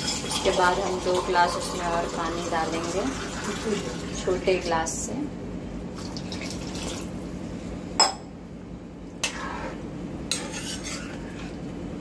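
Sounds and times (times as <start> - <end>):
ladle stirring and clinking on pan: 9.2 - 11.6.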